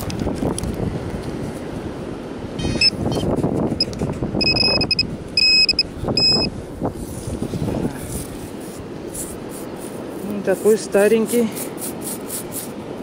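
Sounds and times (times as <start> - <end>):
metal detector beeps: 2.6 - 3.3, 4.4 - 6.5
sand rustling and scraping: 6.9 - 13.0.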